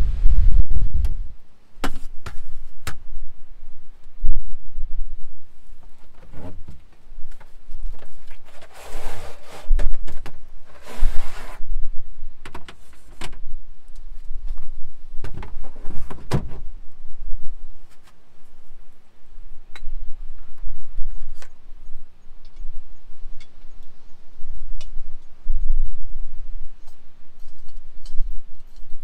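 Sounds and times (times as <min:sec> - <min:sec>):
scraping noises: 0:08.0 - 0:10.1, 0:10.7 - 0:11.7.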